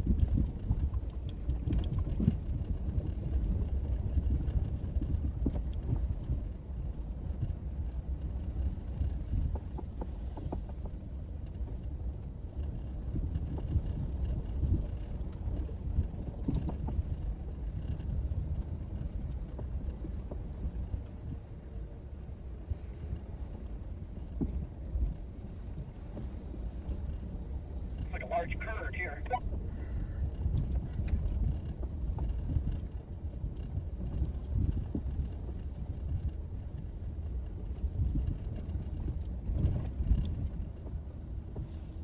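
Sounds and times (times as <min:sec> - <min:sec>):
vehicle rumbling on dirt trail: 0:00.0 - 0:42.0.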